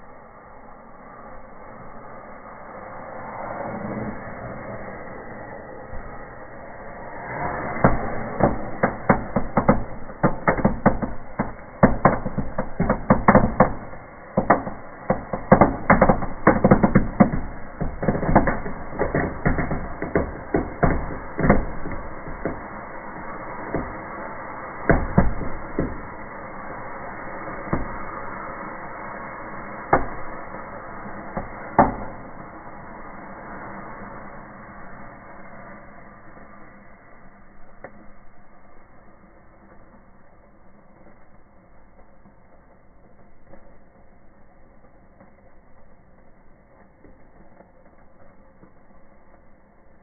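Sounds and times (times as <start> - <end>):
steady hiss: 0.0 - 50.0
small firecrackers banging: 5.8 - 50.0.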